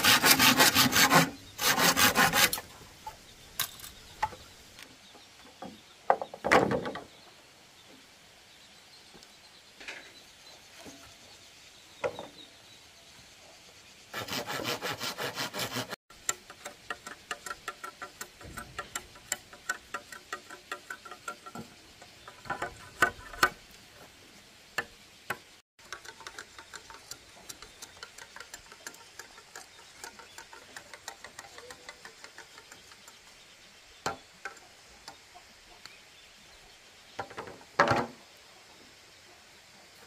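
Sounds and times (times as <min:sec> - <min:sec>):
hand saw cutting bamboo: 0:00.0 - 0:02.7, 0:14.2 - 0:21.5.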